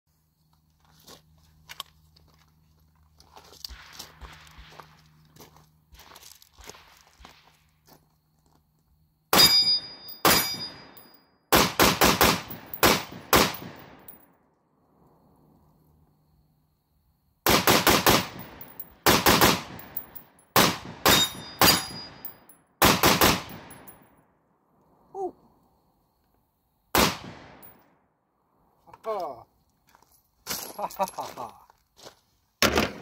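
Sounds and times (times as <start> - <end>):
rifle shots: 9.3 - 10.8, 11.5 - 14.1, 17.4 - 20.0, 20.6 - 22.2, 22.8 - 23.8, 26.9 - 27.7
high ringing tone: 9.4 - 11.3, 21.1 - 22.5.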